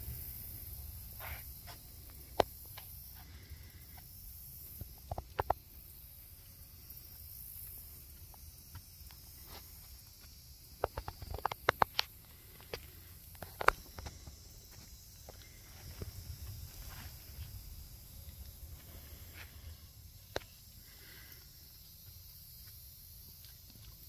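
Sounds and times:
steady low rumble: 0.0s - 6.9s, 12.2s - 21.0s
footsteps crunching on a trail: 7.0s - 24.0s.

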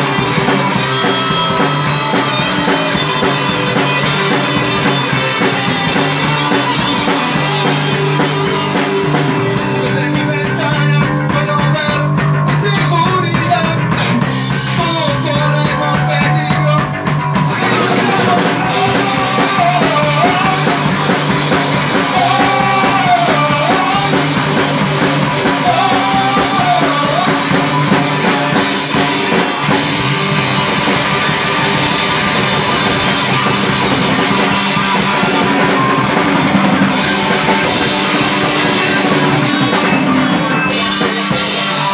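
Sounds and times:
bass guitar: 0.0s - 41.9s
drum kit: 0.0s - 41.9s
electric guitars: 0.0s - 41.9s.

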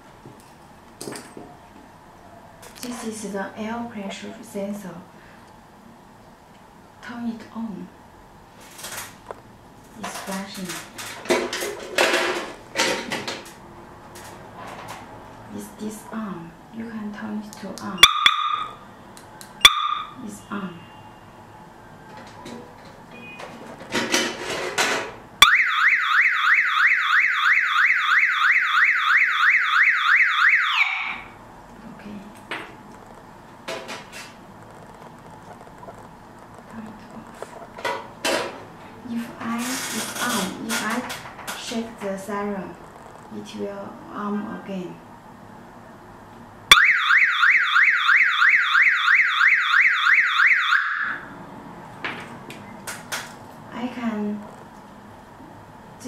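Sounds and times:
car alarm siren whooping: 18.0s - 18.8s, 19.6s - 20.2s, 25.4s - 31.4s, 46.7s - 51.3s.

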